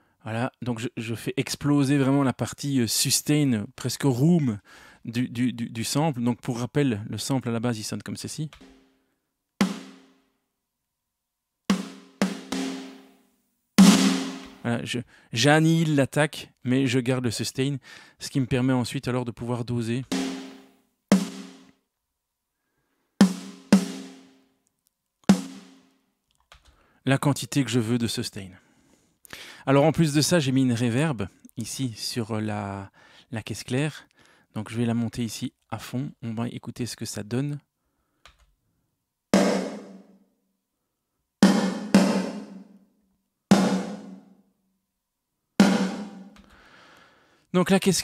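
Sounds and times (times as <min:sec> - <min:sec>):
snare drum hits: 0:13.8 - 0:14.6, 0:43.5 - 0:44.2, 0:45.6 - 0:46.4.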